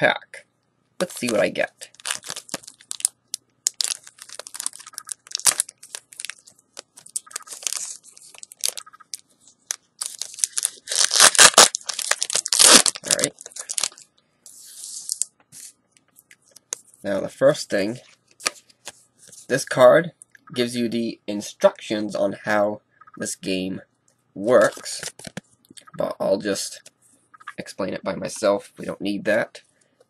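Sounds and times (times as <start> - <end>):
plastic wrapper tearing and crackling: 1.0 - 14.1.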